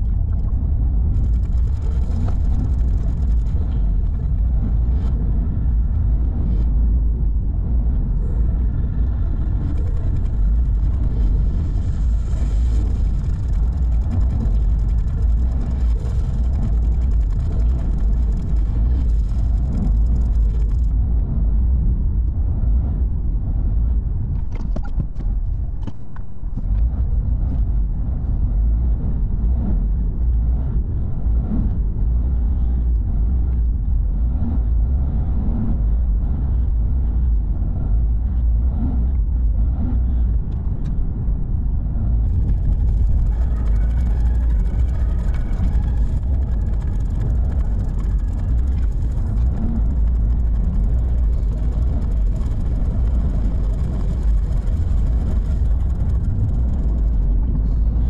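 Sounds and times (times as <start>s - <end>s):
car driving rumble: 0.0s - 58.0s
sharp clicks and knocks: 24.4s - 26.9s.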